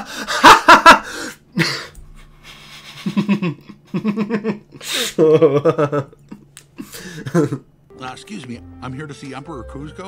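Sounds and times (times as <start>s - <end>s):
man laughing behind his hand: 1.6s - 6.4s
sharp gasping in-breaths: 6.8s - 7.3s.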